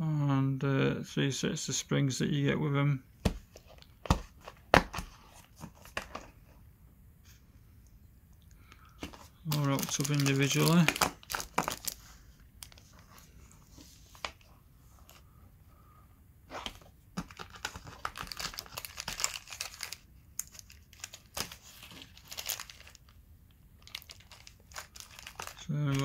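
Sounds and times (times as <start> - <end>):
plastic bags crinkling: 9.0 - 12.9, 17.2 - 23.2, 23.8 - 26.0.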